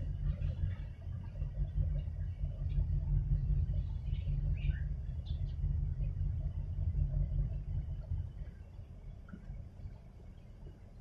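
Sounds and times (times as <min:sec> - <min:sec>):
ship engines rumbling: 0:00.0 - 0:10.7
faint bird chirps: 0:03.8 - 0:05.7.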